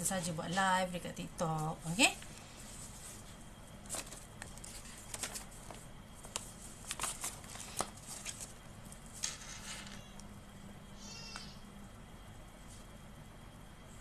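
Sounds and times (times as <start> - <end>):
clicks and rustles of handling: 3.2 - 10.3.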